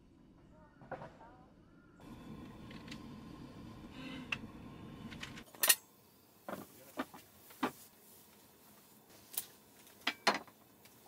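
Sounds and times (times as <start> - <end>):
low background rumble: 0.0 - 6.5.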